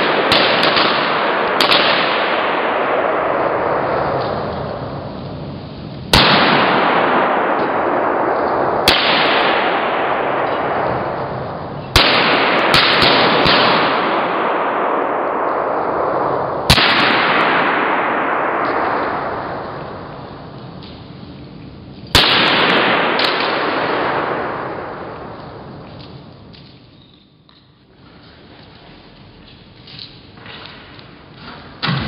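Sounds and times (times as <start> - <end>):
gunpowder bangs: 0.0 - 5.2, 6.1 - 21.3, 22.0 - 27.4, 29.4 - 32.0
rushing hiss of burning: 3.6 - 7.3.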